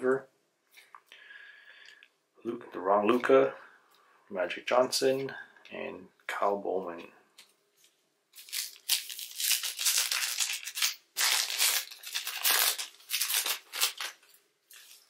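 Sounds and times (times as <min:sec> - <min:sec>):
plastic wrapper crinkling: 0:07.8 - 0:15.0.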